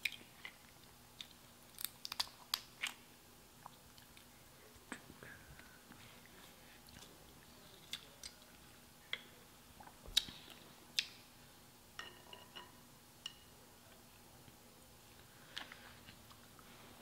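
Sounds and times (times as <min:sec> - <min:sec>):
crab shells cracking: 0:01.7 - 0:03.0.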